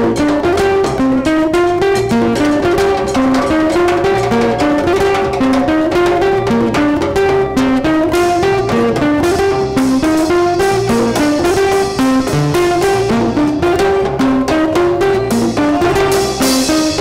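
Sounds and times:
hand drums: 0.0 - 17.0
strummed acoustic guitar: 0.0 - 17.0
upright bass: 0.0 - 17.0.

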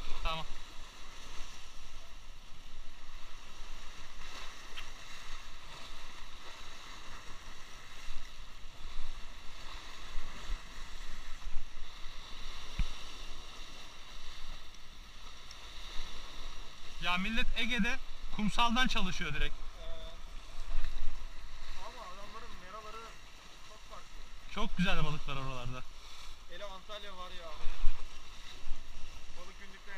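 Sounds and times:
waves breaking over rocks: 0.0 - 29.9
wind rumble on microphone: 27.4 - 29.8.

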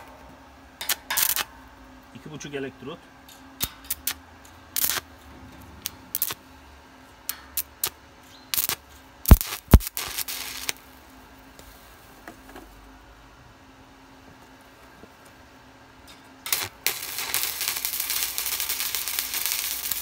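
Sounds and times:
welding arc crackling: 0.0 - 2.6, 3.6 - 12.2, 16.4 - 20.0.

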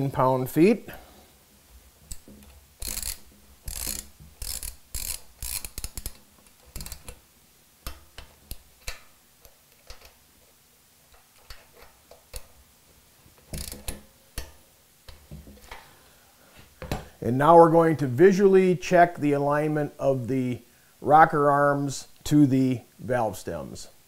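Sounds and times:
torque wrench ratchet clicking: 2.1 - 7.2, 13.5 - 14.5.

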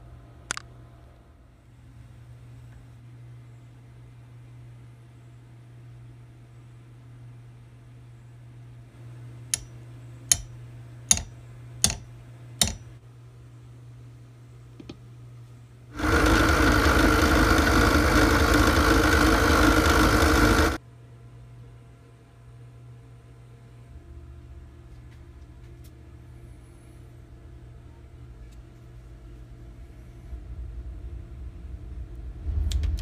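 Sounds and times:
metallic taps on nail: 9.5 - 10.5, 11.1 - 12.9
loud machine whir: 16.0 - 20.8.

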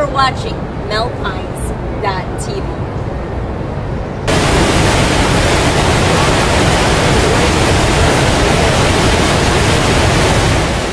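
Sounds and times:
waterfall rushing: 4.3 - 10.9.

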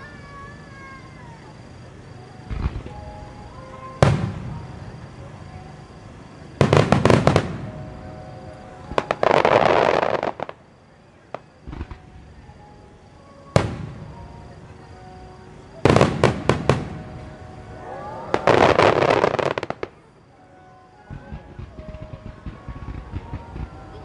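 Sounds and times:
firework crackle: 2.3 - 5.2, 5.9 - 10.7, 11.3 - 12.4, 15.8 - 20.2, 21.0 - 24.0
firework shells bursting: 21.1 - 24.0.

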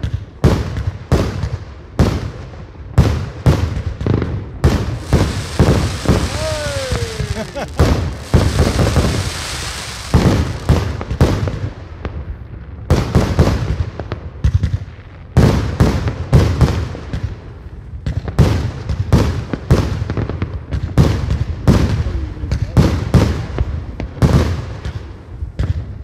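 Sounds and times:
fireworks bangs: 4.1 - 12.1
hissing crackle: 4.8 - 11.2.

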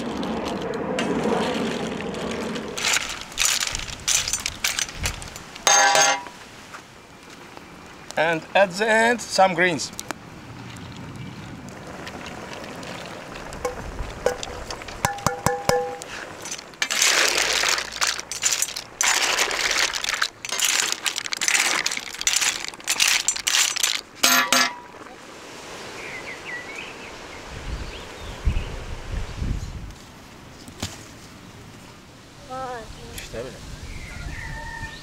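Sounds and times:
mussel shells clattering and sizzling: 1.6 - 6.4, 12.8 - 25.0
metal clank: 5.6 - 6.3, 23.0 - 24.9.

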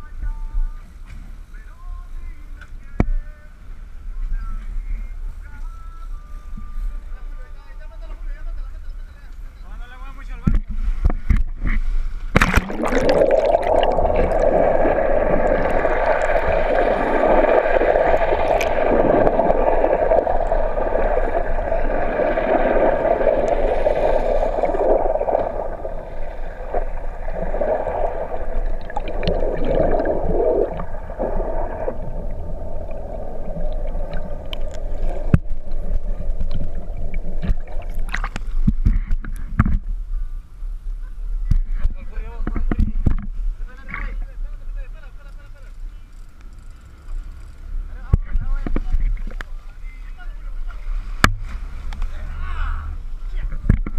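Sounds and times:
underwater water rushing and gurgling: 10.8 - 39.8
steady hum: 12.0 - 42.6.

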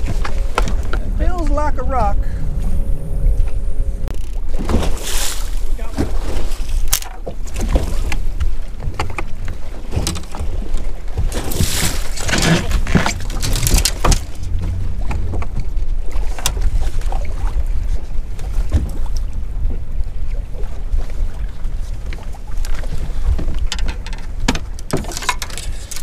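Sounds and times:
waves slapping against boat hull: 0.0 - 2.2, 3.4 - 26.0
steady low rumble: 0.0 - 26.0
wind buffeting microphone: 0.0 - 26.0
rush of water: 4.1 - 26.0.

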